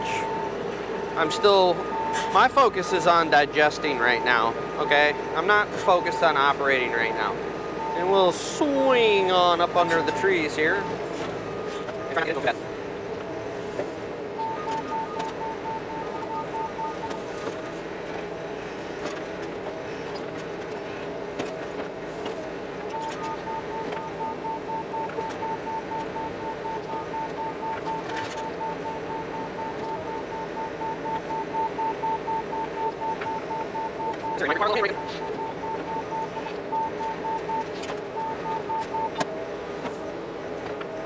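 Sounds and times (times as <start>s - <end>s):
rapid electronic beeping: 0.0s - 12.6s, 14.4s - 17.7s, 22.9s - 39.2s
excavator engine running: 0.0s - 41.0s.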